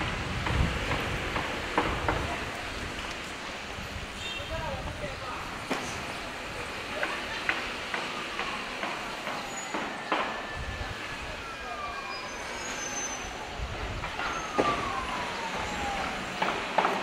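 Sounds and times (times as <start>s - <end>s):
city street traffic: 0.0s - 17.0s
slowly falling whines: 7.5s - 17.0s.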